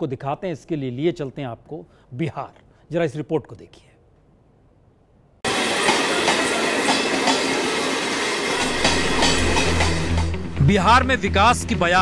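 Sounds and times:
train wheels on rails: 5.4 - 10.4.

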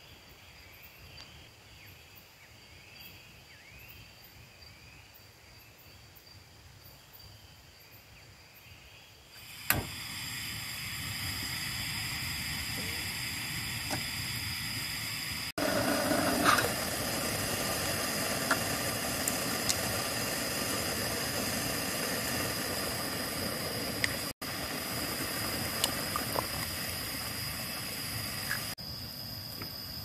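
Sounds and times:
water boiling: 9.4 - 28.8
camping stove burner hissing: 9.4 - 30.0.

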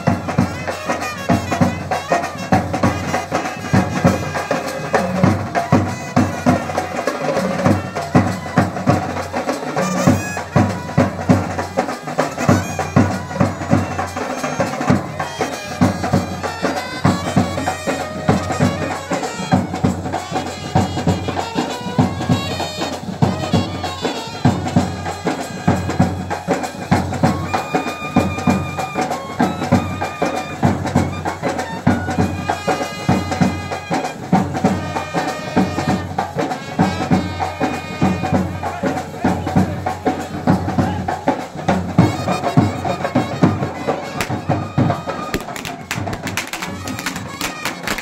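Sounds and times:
reedy wind instrument melody: 0.0 - 48.0
snare drums: 0.0 - 48.0
bass drum beat: 44.2 - 48.0.

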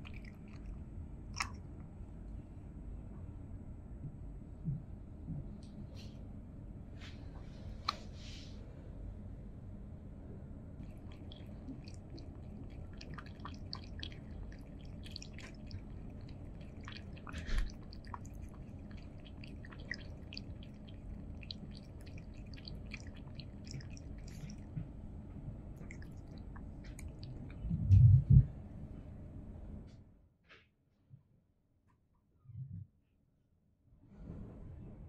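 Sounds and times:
cat lapping water: 0.0 - 1.8, 10.8 - 24.8, 25.7 - 27.8.

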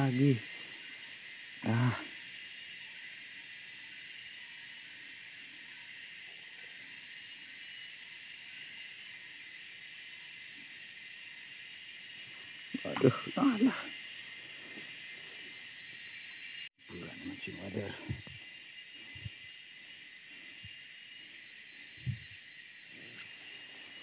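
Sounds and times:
forest stream hiss: 0.0 - 24.0
man exclaiming: 12.8 - 13.9.

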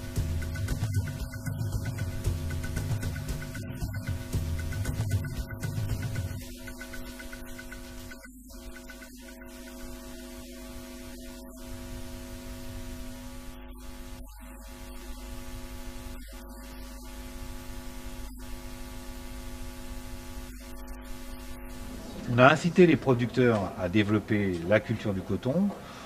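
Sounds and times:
recording hiss: 0.0 - 14.2, 15.9 - 26.0
electrical mains hum: 0.0 - 26.0.

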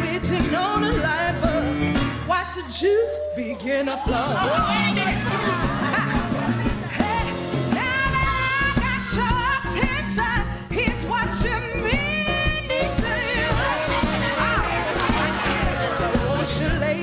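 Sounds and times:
woman singing: 0.0 - 5.8, 7.0 - 17.0
band with steady beat: 4.2 - 10.4.

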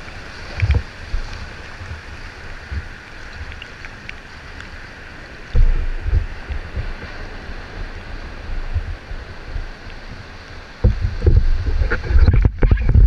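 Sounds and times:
paddle dipping in water: 0.0 - 13.0
water rushing and splashing: 0.0 - 13.0
wind buffeting microphone: 5.1 - 13.0.

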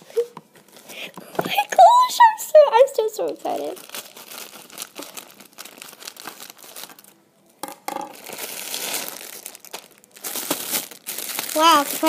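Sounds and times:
packaging crinkling: 3.2 - 7.2, 8.0 - 12.0.

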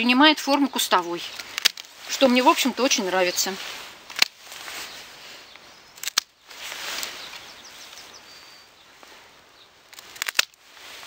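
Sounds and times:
secateurs snipping: 0.4 - 2.5, 4.0 - 4.6, 6.0 - 7.5, 9.9 - 10.6
rustle of cut stems: 0.4 - 11.0.

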